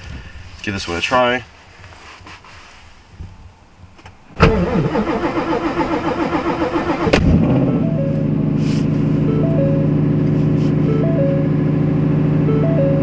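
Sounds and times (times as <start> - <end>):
car engine cold-starting and idling: 4.3 - 13.0.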